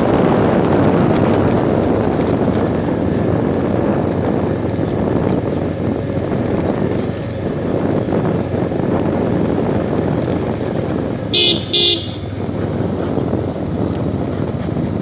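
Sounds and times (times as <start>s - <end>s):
motorcycle engine: 0.0s - 15.0s
wind noise: 0.0s - 15.0s
horn beeps: 11.3s - 12.3s.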